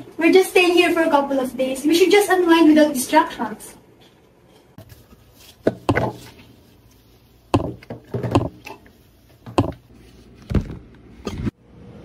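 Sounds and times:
knocks on wood: 7.5s - 8.6s.

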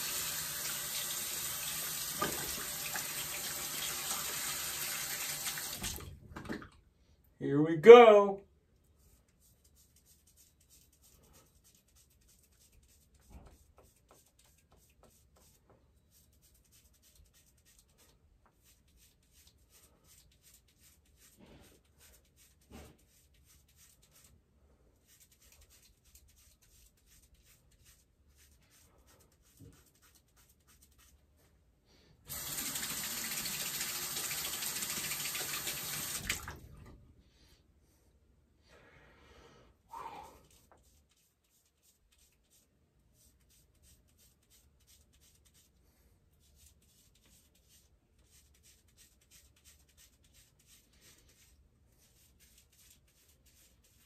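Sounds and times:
tap running into sink: 2.1s - 2.6s.

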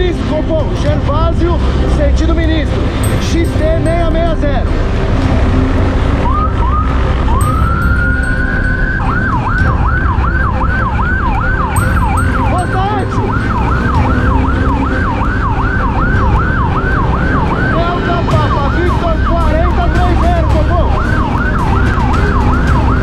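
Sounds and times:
low rumble: 0.0s - 23.0s
police siren wailing and yelping: 5.3s - 23.0s.

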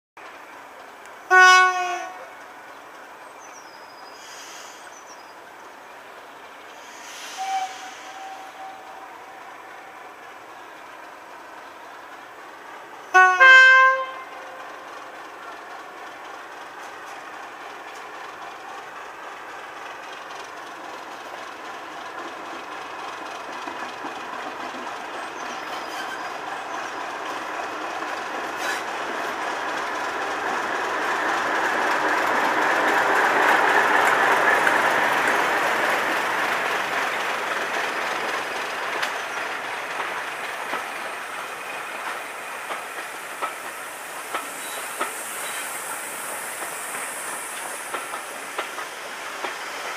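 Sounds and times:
diesel locomotive engine: 0.2s - 49.9s
steam hissing: 4.0s - 5.0s, 6.6s - 10.5s, 27.4s - 49.9s
wheels clicking over rail joints: 19.8s - 45.6s, 46.5s - 49.9s.

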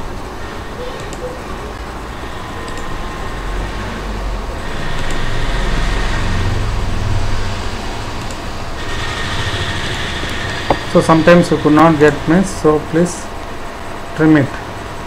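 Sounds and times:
low rumble: 1.7s - 13.7s.

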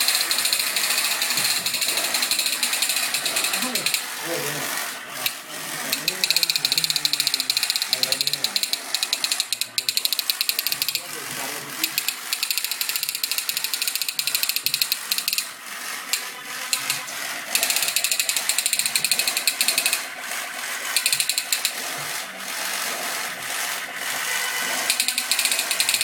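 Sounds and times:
rattling clicks: 0.0s - 4.1s, 5.2s - 11.0s, 11.8s - 20.1s, 20.9s - 21.8s, 24.8s - 26.0s.

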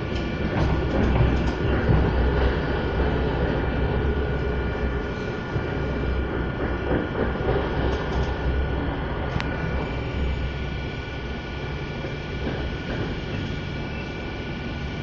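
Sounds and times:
train rumbling at speed: 0.0s - 15.0s
high whine: 8.2s - 15.0s.

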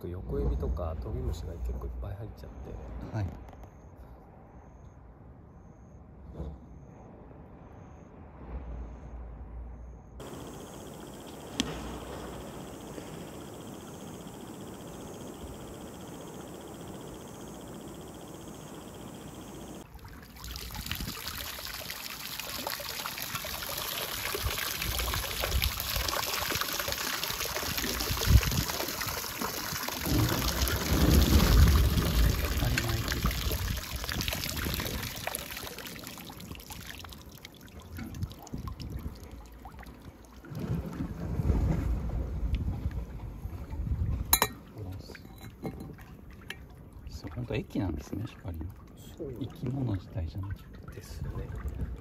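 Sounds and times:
water pouring and splashing: 19.8s - 52.0s.

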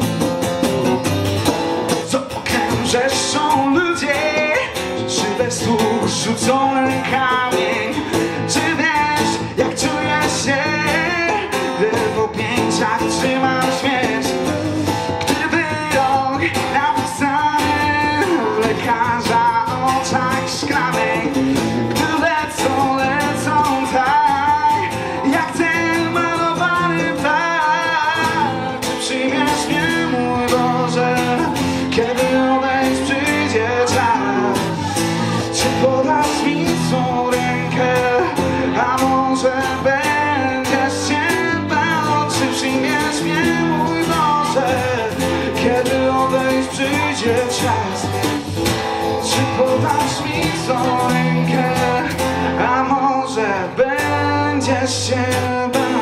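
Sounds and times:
amplified electric guitar: 0.0s - 56.0s
strummed acoustic guitar: 0.0s - 56.0s
person singing: 1.8s - 56.0s.

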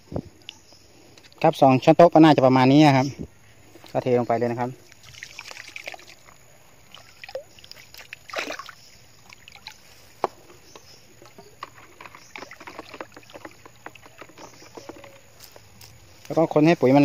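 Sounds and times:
water sloshing in bucket: 4.8s - 15.9s
pole stirring water: 4.9s - 15.4s
small knocks: 10.2s - 15.6s.

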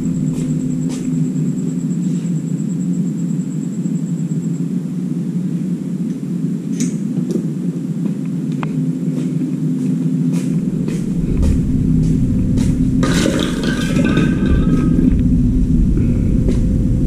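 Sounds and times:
low rumble: 0.0s - 2.6s, 10.2s - 17.0s.

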